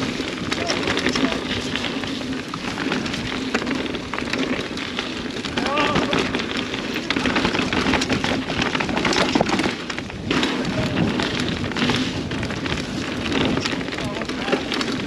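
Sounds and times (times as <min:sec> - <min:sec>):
bike clattering and rattling: 0:00.0 - 0:15.0
tyres crunching over dirt: 0:00.0 - 0:15.0
wind on microphone: 0:05.4 - 0:14.7.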